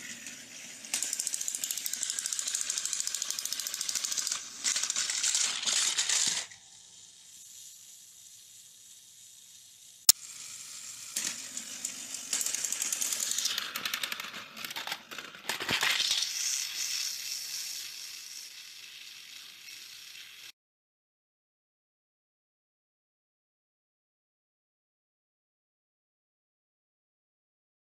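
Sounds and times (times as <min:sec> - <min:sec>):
toy train motors whirring: 0:00.0 - 0:20.6
toy trains clattering off track: 0:00.0 - 0:20.6.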